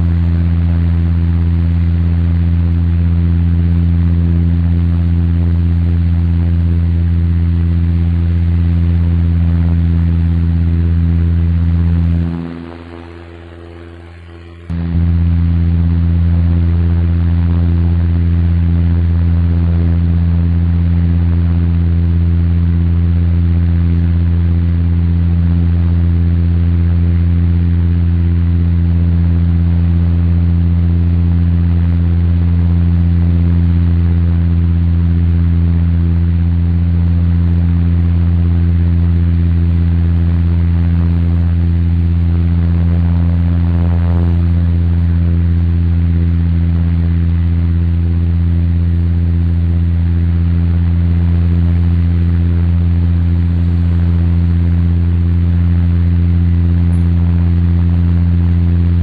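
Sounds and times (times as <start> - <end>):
airplane cabin engine drone: 0.0 - 59.0.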